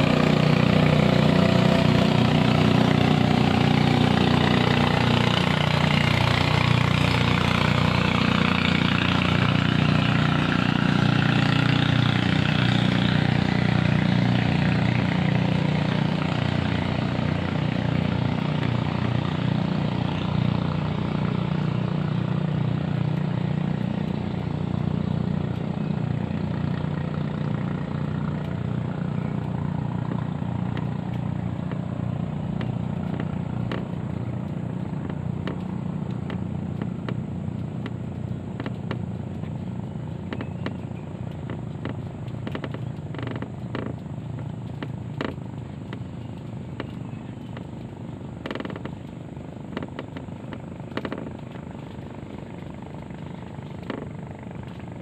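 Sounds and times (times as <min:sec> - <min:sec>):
boat engine droning: 0:00.0 - 0:55.0
small clicks and taps: 0:32.6 - 0:55.0.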